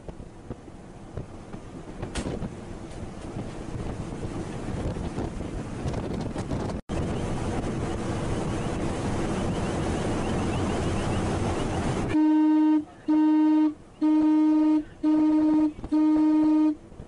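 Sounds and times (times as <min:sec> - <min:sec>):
sea noise: 0:00.0 - 0:17.0
wind: 0:00.0 - 0:17.0
ship's horn short blasts: 0:11.9 - 0:16.9.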